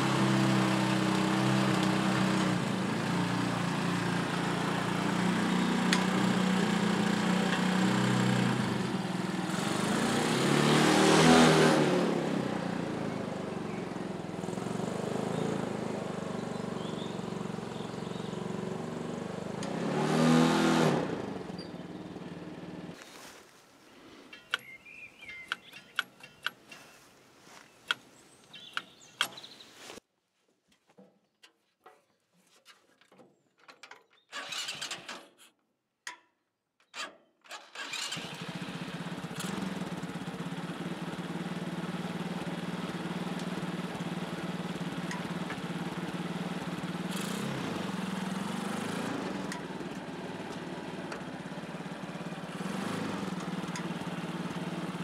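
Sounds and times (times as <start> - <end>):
motorcycle engine running: 0.0 - 23.0, 38.2 - 55.0.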